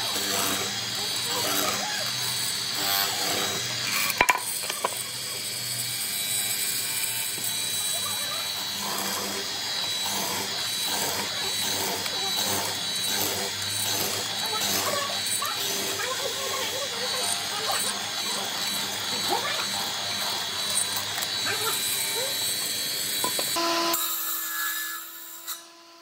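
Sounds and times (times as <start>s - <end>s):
mortiser chisel cutting wood: 0.0s - 26.0s.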